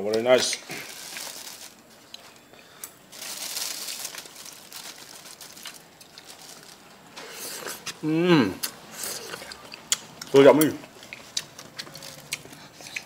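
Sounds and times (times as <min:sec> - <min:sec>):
plastic packaging crinkling: 0:00.4 - 0:02.3, 0:03.1 - 0:07.0, 0:11.4 - 0:12.3.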